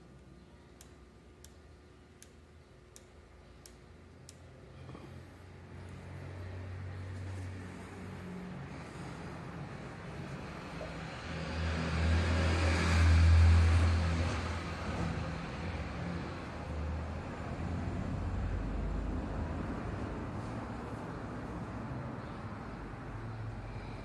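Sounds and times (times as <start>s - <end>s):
vehicle passing by: 5.6s - 24.0s.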